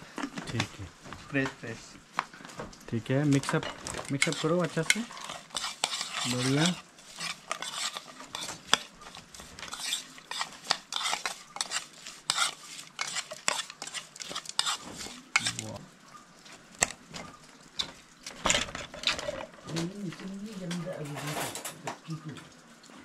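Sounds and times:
utensils scraping in a bowl: 3.3s - 15.8s.

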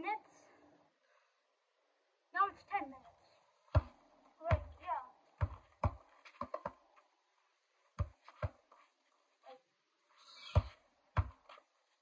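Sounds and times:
basketball bouncing on concrete: 3.7s - 7.0s, 8.0s - 8.7s, 10.5s - 11.6s.

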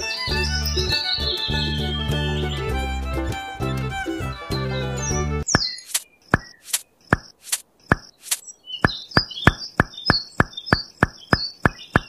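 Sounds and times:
rapid sharp clicks: 5.5s - 12.0s.

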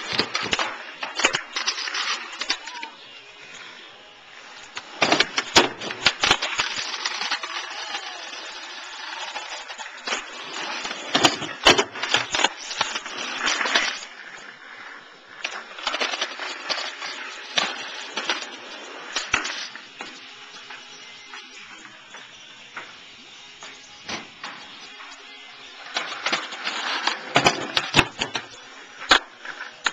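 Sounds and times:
skateboard clacking on ground: 0.0s - 3.1s, 25.9s - 29.9s
skateboard wheels rolling on pavement: 0.0s - 29.9s.

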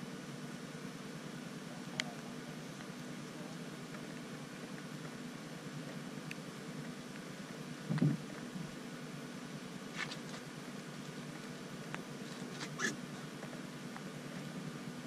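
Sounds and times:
low mechanical hum: 0.0s - 15.0s
soft thump: 7.9s - 8.2s.

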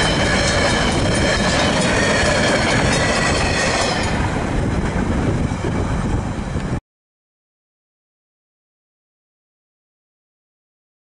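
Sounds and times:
train wheels clattering on rails: 0.0s - 6.8s.

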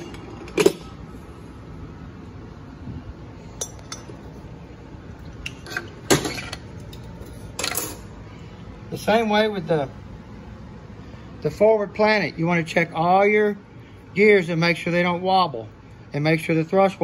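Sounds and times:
metal parts clinking: 5.5s - 8.1s.

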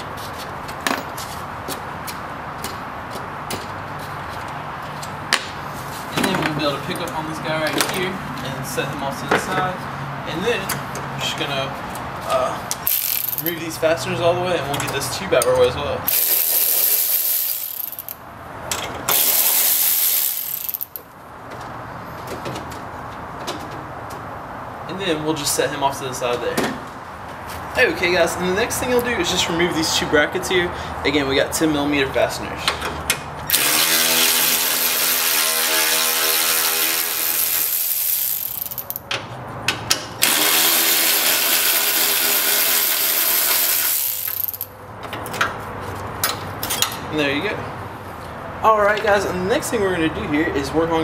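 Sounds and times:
tool and parts clicking: 12.7s - 13.6s, 16.1s - 21.1s, 32.8s - 39.2s, 39.8s - 45.5s
power ratchet spinning: 12.8s - 13.6s, 16.1s - 18.2s, 19.1s - 21.0s, 33.5s - 39.0s, 40.2s - 44.7s.

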